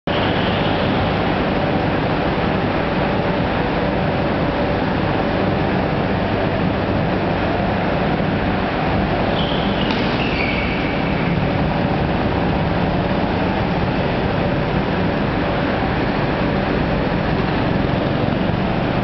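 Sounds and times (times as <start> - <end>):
go-kart engines running: 0.1 - 19.0.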